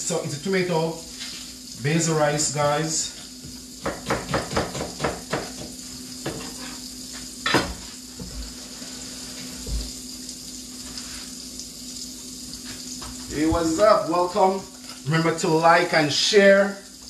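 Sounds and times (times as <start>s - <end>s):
faint sizzle in a pot: 0.0s - 17.0s
knife chopping on cutting board: 3.8s - 6.6s.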